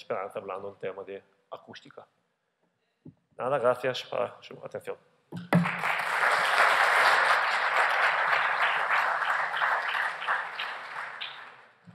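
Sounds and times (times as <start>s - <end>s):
audience applauding: 5.5s - 11.8s.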